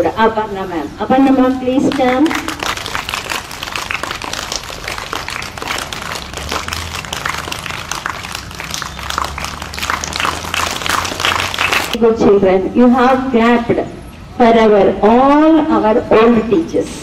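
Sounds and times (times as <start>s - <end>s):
audience applauding: 1.9s - 12.0s.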